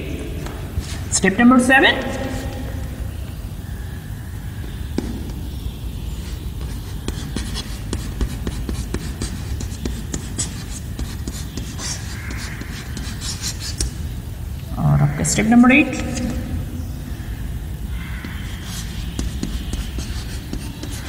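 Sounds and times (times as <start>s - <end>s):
low room hum: 0.0s - 21.0s
chalk tapping and scratching: 6.1s - 14.2s, 18.0s - 21.0s.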